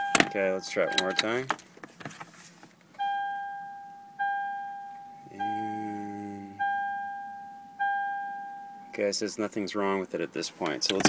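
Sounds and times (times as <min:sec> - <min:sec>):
dashboard warning chime: 0:00.0 - 0:01.5, 0:03.0 - 0:06.0, 0:06.6 - 0:09.0
low steady hum: 0:00.0 - 0:11.0.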